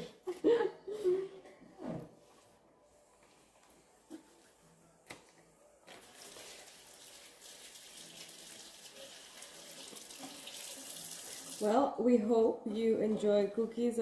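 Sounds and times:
faucet running into sink: 6.1s - 11.7s.

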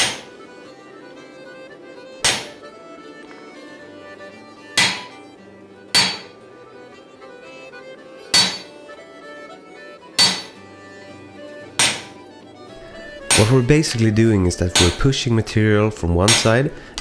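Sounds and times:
hammer striking punch on anvil: 0.0s - 0.3s, 2.2s - 2.6s, 4.7s - 5.2s, 5.9s - 6.4s, 8.3s - 8.7s, 10.2s - 10.6s, 11.8s - 12.2s, 13.2s - 13.7s, 14.7s - 15.1s, 16.3s - 17.0s.

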